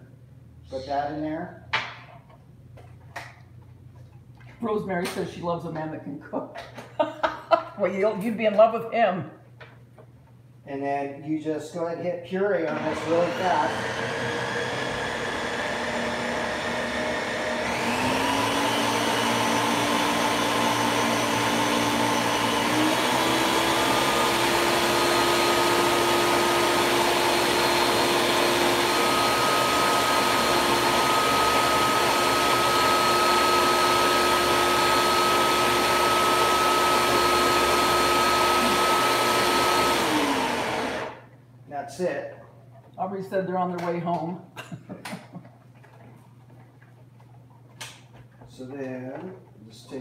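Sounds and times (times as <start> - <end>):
blender motor whine: 12.7 - 41.3.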